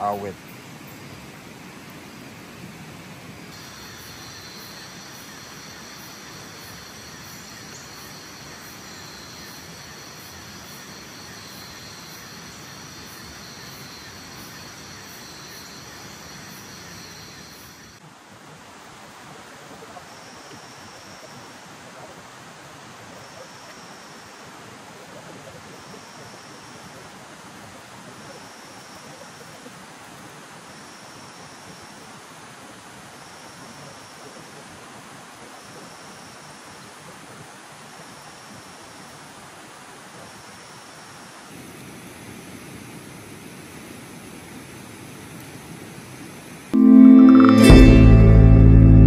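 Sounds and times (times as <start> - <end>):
insects trilling: 0.0 - 18.0
steady rushing hiss: 0.0 - 23.2
short high chirp: 46.8 - 49.0.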